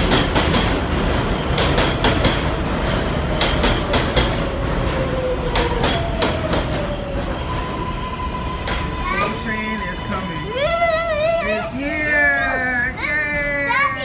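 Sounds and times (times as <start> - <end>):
train wheels clacking over joints: 0.0 - 7.7
train rumble: 0.0 - 14.0
steady high tone: 7.6 - 14.0.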